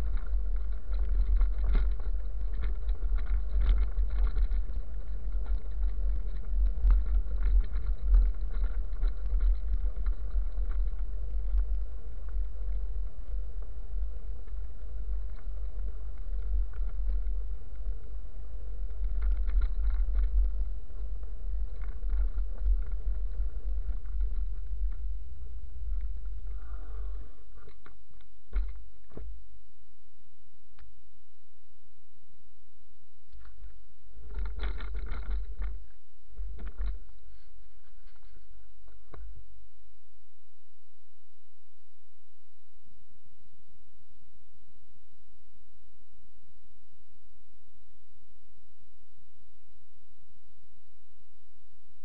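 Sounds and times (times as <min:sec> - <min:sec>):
wind rumble on microphone: 0:00.0 - 0:29.4, 0:33.3 - 0:41.3.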